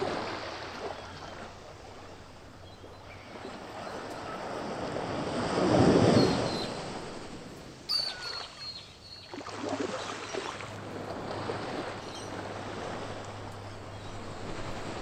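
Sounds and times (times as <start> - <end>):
ocean waves crashing: 0.0 - 15.0.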